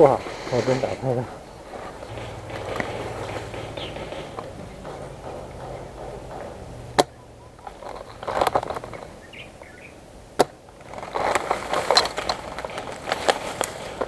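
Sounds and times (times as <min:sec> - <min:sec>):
grass rustling against gun: 0:00.0 - 0:09.8, 0:10.7 - 0:14.0
airsoft gun shots: 0:02.0 - 0:07.6.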